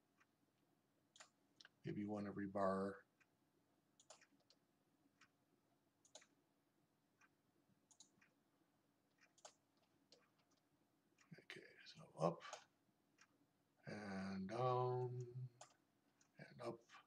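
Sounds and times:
faint computer mouse clicks: 1.1s - 1.8s, 4.0s - 4.6s, 6.0s - 6.4s, 7.9s - 8.3s, 9.2s - 10.6s.

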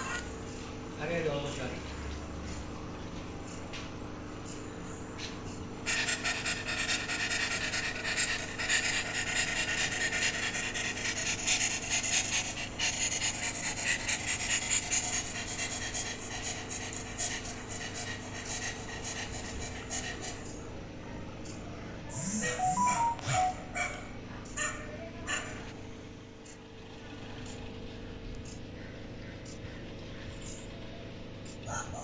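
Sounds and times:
dog panting: 5.9s - 20.6s.

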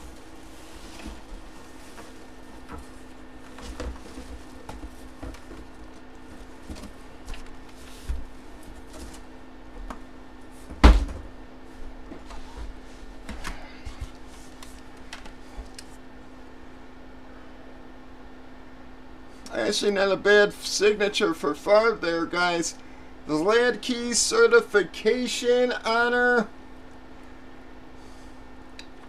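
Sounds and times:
helmet thump: 10.7s - 11.3s.

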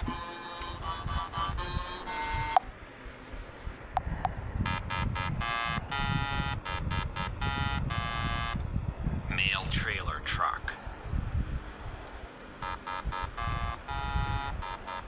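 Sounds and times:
low engine rumble: 0.0s - 15.0s
truck horn toots: 4.6s - 8.6s, 12.6s - 15.0s.

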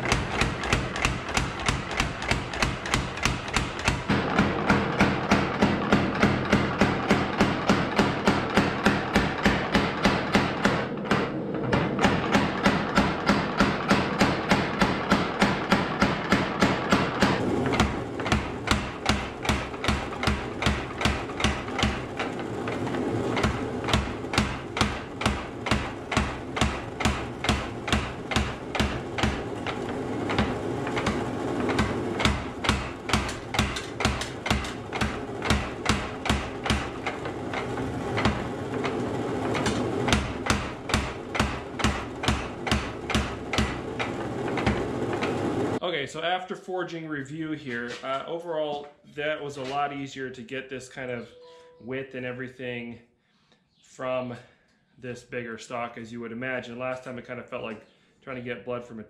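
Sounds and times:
power hammer pounding steel: 0.0s - 45.8s.

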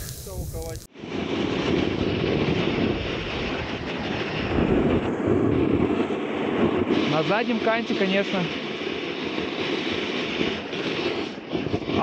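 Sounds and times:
snowboard scraping over snow: 0.0s - 12.0s
wind on microphone: 0.0s - 12.0s.

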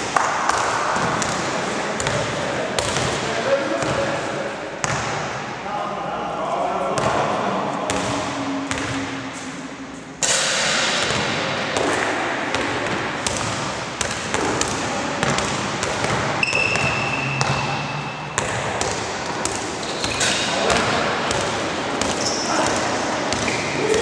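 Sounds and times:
basketball bouncing on gym floor: 0.2s - 3.2s, 4.8s - 5.3s, 7.9s - 9.2s, 10.2s - 24.0s
steady high tone: 6.0s - 10.2s, 16.4s - 18.6s.

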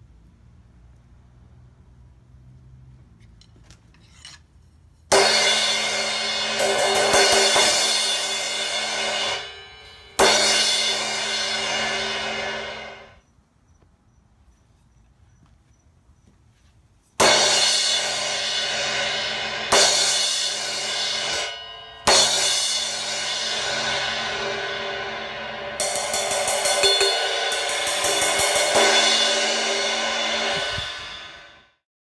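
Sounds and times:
crash cymbal struck: 5.1s - 13.2s, 17.2s - 31.8s.

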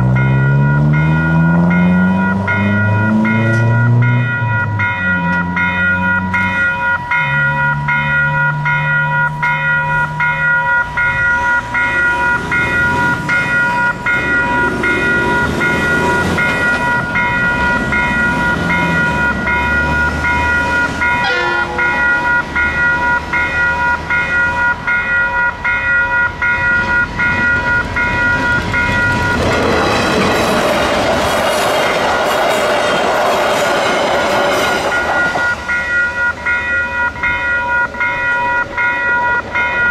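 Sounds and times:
level crossing warning bell: 0.0s - 39.9s
passenger train arriving: 0.0s - 39.9s.

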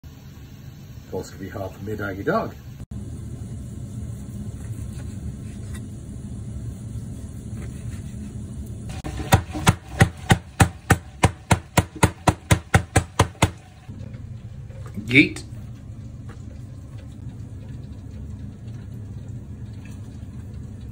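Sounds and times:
low steady hum: 0.1s - 20.9s
meat mallet pounding on cutting board: 9.0s - 13.6s.

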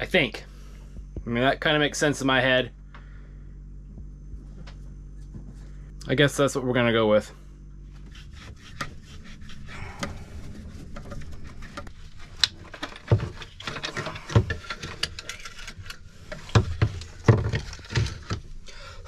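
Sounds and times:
cable and lever clicks and rattles: 10.0s - 18.7s
dull thumps: 16.0s - 18.7s.

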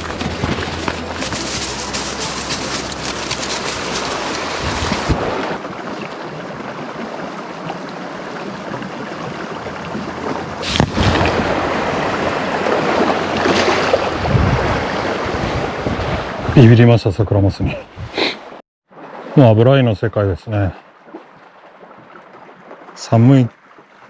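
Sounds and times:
river water rushing: 0.0s - 16.5s
wind buffeting microphone: 3.0s - 6.9s, 8.6s - 16.8s.

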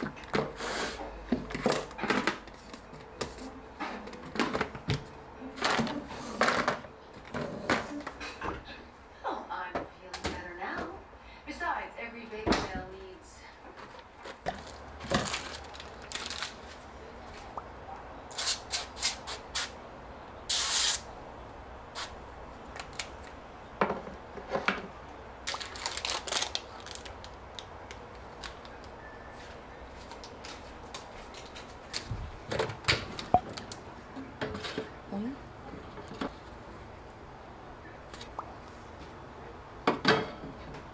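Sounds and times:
rustling and handling noises: 0.0s - 8.4s, 13.0s - 17.5s, 25.5s - 33.8s.

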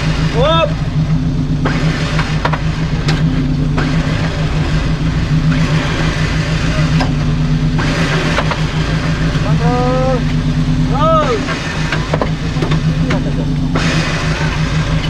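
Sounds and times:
off-road vehicle engine revving: 0.0s - 15.0s
sharp knocks: 1.6s - 4.4s, 11.5s - 14.0s.

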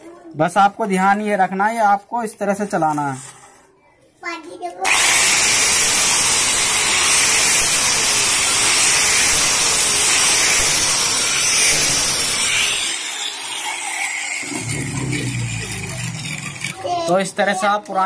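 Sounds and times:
angle grinder sanding wood: 4.9s - 17.2s
grinder motor winding down: 4.9s - 17.2s.

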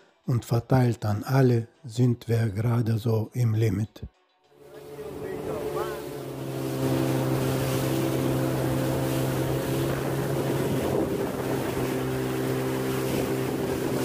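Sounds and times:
outboard motor humming: 4.6s - 14.0s
water rushing: 4.6s - 14.0s
wind rushing: 4.6s - 14.0s.

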